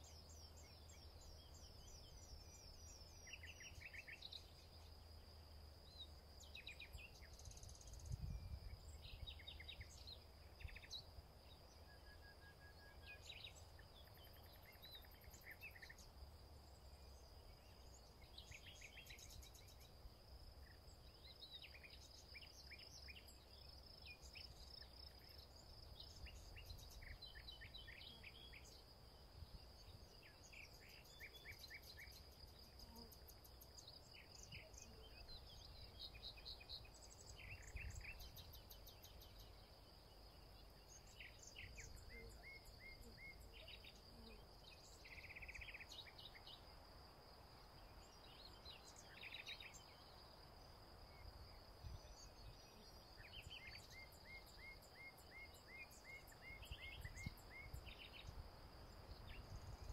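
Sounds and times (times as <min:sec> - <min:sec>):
wind rumble on microphone: 0:07.6 - 0:09.5, 0:56.8 - 0:59.9
bird chirps: 0:51.1 - 0:58.4.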